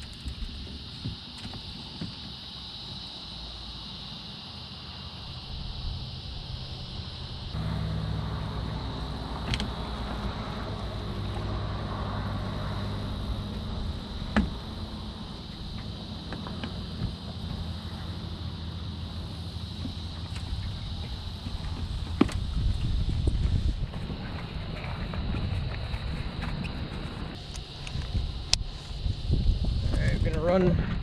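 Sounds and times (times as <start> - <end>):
high insect drone: 0.0 - 31.0
electric boat motor humming: 5.2 - 23.9
sharp knocks: 14.3 - 14.6.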